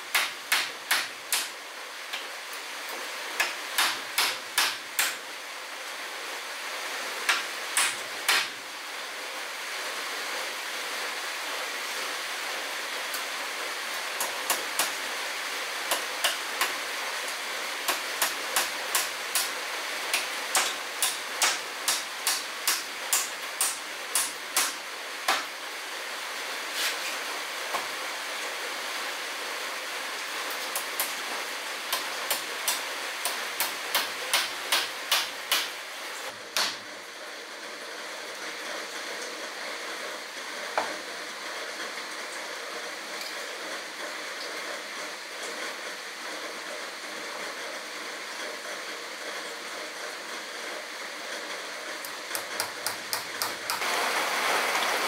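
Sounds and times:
hammer striking wooden boards: 0.1 - 1.5, 3.4 - 5.2, 7.3 - 8.5, 20.1 - 25.5, 31.9 - 35.7, 36.6 - 36.8.

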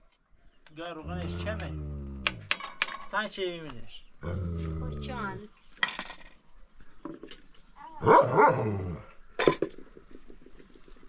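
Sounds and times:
dog barking: 8.0 - 8.8.

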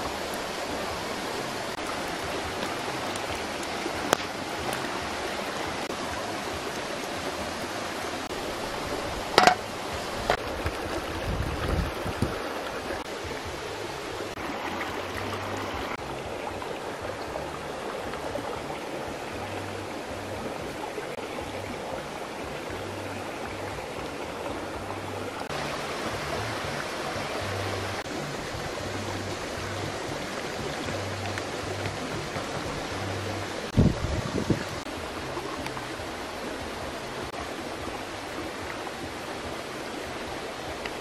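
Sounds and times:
stream flowing: 0.0 - 41.0
sharp clicks and knocks: 9.3 - 9.6.

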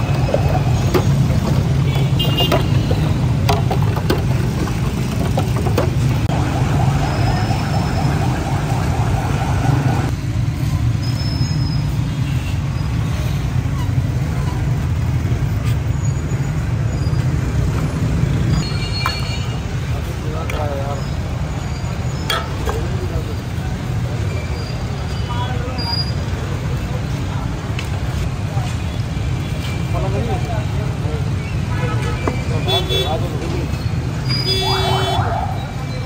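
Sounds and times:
street traffic rumble: 0.0 - 36.0.

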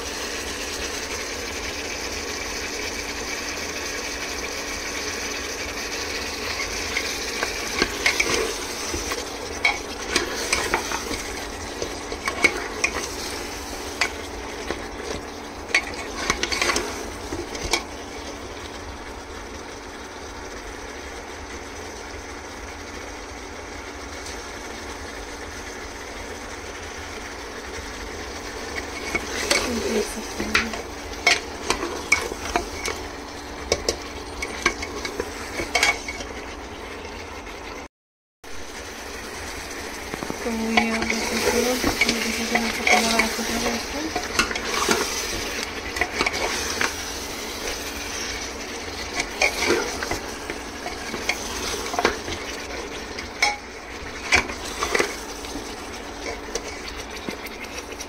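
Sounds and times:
meat sizzling in oil: 0.0 - 58.0
spoon scraping a pot: 6.5 - 17.9, 28.7 - 33.0, 33.7 - 36.4, 40.7 - 58.0.

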